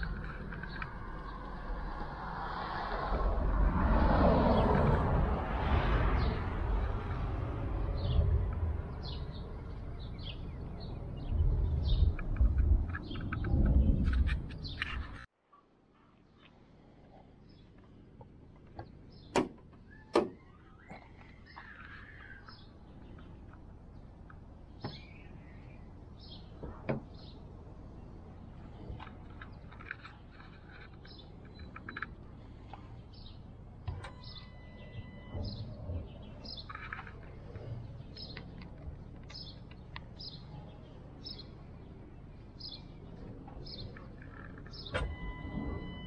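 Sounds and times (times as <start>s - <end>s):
small birds chirping: 7.8s - 15.3s, 16.0s - 45.1s.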